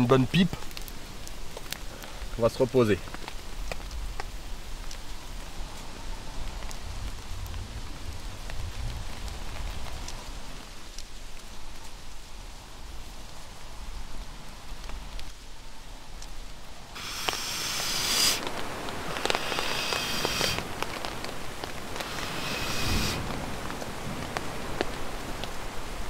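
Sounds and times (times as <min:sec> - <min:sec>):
rain falling steadily: 0:00.0 - 0:26.0
bursts of hiss with crackles: 0:16.2 - 0:25.4.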